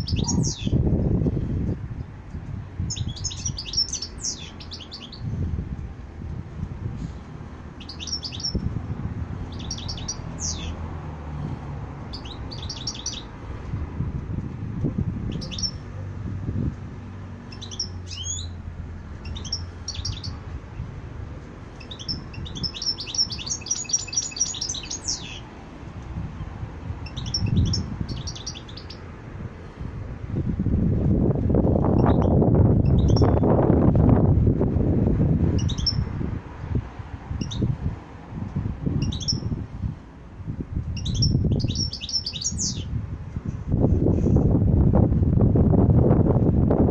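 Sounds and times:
goldfinch singing: 0:00.0 - 0:00.8, 0:02.9 - 0:05.3, 0:07.8 - 0:08.6, 0:09.5 - 0:10.8, 0:12.1 - 0:13.3, 0:15.3 - 0:15.8, 0:17.5 - 0:18.6, 0:19.2 - 0:20.4, 0:21.8 - 0:25.5, 0:27.0 - 0:29.0, 0:31.9 - 0:33.4, 0:35.6 - 0:36.1, 0:39.0 - 0:39.5, 0:41.0 - 0:42.9.

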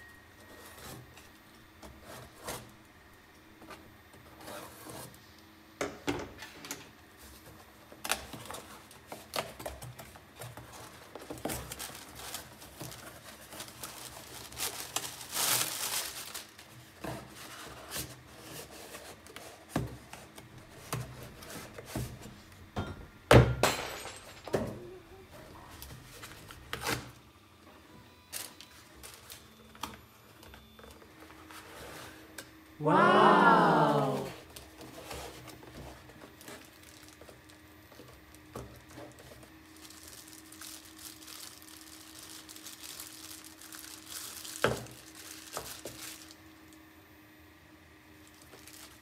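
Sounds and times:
plastic air pillows rustling: 0:07.2 - 0:22.4, 0:34.8 - 0:46.4.

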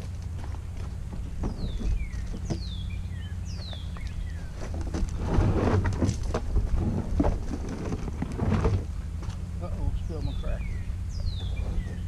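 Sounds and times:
rustling and clattering: 0:00.0 - 0:02.8, 0:03.7 - 0:09.5
bird chirping: 0:00.0 - 0:05.0, 0:09.0 - 0:12.0
wind rumbling on microphone: 0:00.0 - 0:09.2.

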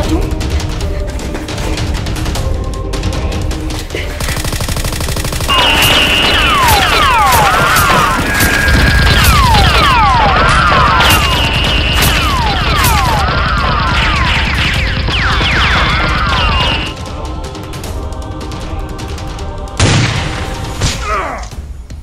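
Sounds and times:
background music: 0:00.0 - 0:22.0
automatic gunfire: 0:04.2 - 0:16.9.

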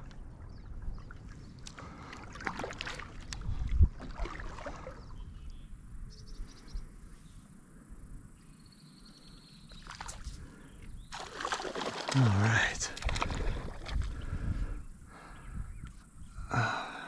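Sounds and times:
kayak paddle splashing in water: 0:01.1 - 0:05.1, 0:11.1 - 0:14.2.

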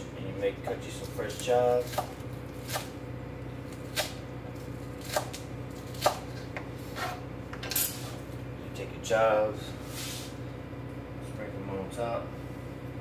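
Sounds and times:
knife chopping on cutting board: 0:01.8 - 0:02.9, 0:03.8 - 0:04.2, 0:05.0 - 0:07.2.

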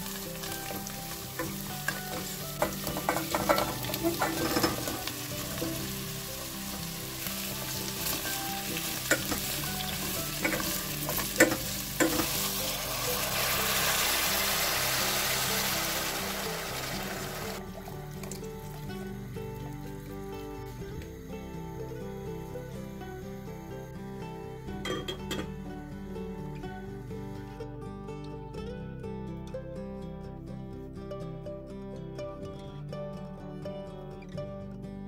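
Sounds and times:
vegetables sizzling in a pot: 0:00.0 - 0:23.8
spoon knocking against pot: 0:02.6 - 0:05.0, 0:10.4 - 0:12.3, 0:24.8 - 0:25.5.

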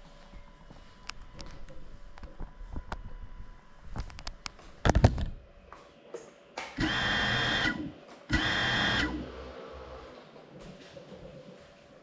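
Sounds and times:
drone motors whining: 0:06.8 - 0:10.2.

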